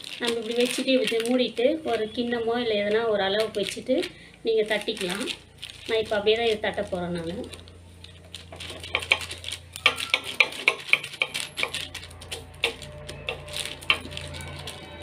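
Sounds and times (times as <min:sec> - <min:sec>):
steady low hum: 0:01.5 - 0:09.8
fingers patting dough on plastic: 0:08.4 - 0:14.4.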